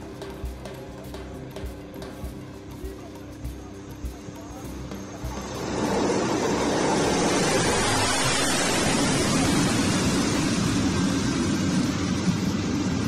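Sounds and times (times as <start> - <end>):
turboprop engines and propellers running: 0.0 - 13.0.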